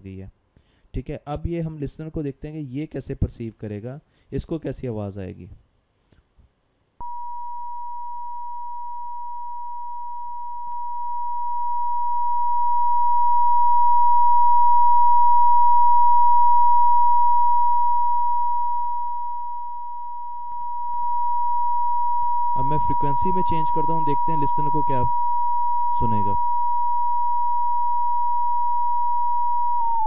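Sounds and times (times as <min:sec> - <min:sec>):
steady sine tone: 0:07.0 - 0:30.0.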